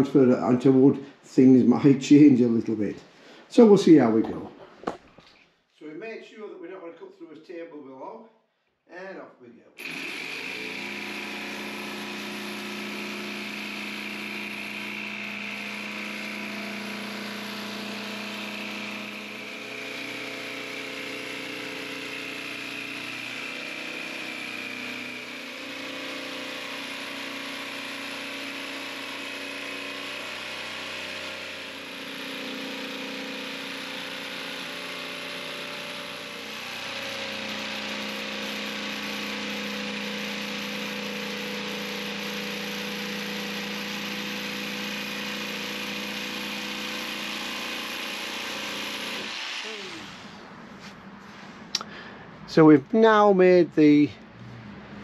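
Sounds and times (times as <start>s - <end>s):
jigsaw cutting plywood: 9.8s - 50.5s.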